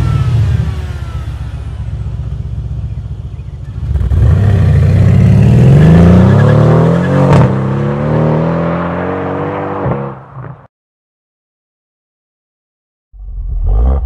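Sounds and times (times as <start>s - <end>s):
car engine revving: 0.0s - 10.2s.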